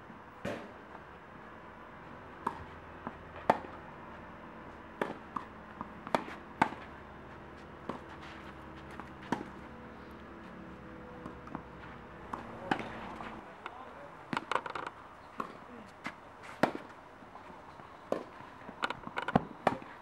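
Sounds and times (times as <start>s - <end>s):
rackets striking tennis ball: 2.4s - 3.8s, 5.0s - 7.0s, 7.6s - 9.7s, 11.2s - 17.0s, 18.1s - 19.9s
tennis ball bouncing: 2.4s - 3.8s, 5.0s - 9.7s, 11.2s - 17.0s, 18.1s - 19.9s.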